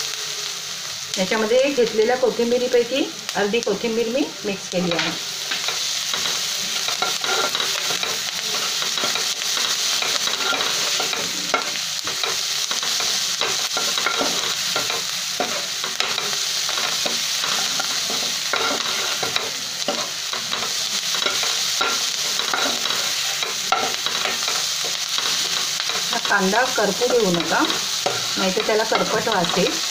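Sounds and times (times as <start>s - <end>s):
onions sizzling in a pan: 0.0s - 29.9s
spoon scraping and tapping pan: 4.9s - 26.4s.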